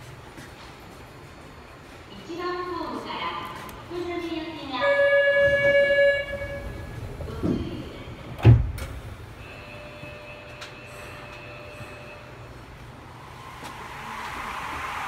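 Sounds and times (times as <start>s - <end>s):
faint train hum: 0.0s - 15.0s.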